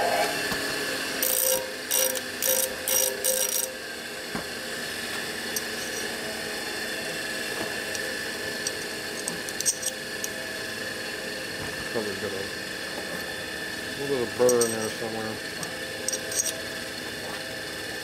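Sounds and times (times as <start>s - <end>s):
metal grinding on disc sander: 0.0s - 0.5s, 1.1s - 3.8s, 11.2s - 17.6s.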